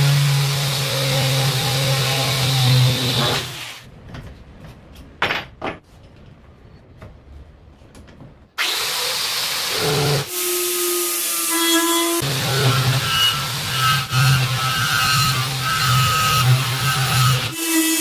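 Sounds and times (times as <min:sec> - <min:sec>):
drill motor whining: 0:08.6 - 0:18.0.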